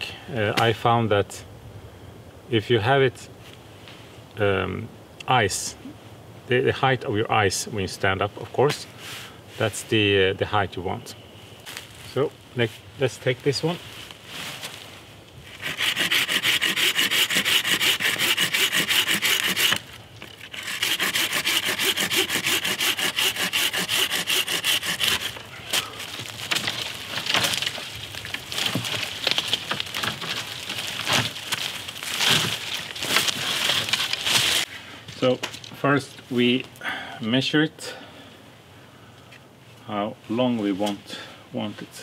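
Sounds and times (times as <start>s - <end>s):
branches rustling: 8.4s - 36.8s
hand saw cutting wood: 15.5s - 27.8s
wood cracking: 15.5s - 34.7s.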